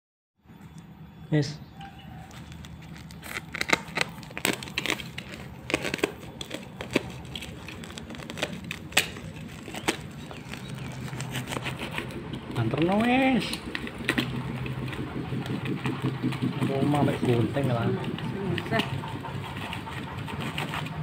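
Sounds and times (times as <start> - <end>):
plastic wrapping crinkling: 2.2 - 15.5.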